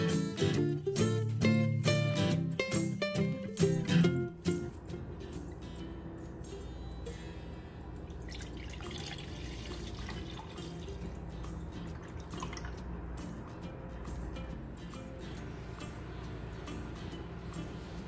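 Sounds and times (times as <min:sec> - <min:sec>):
milk pouring into saucepan: 0:08.1 - 0:11.1.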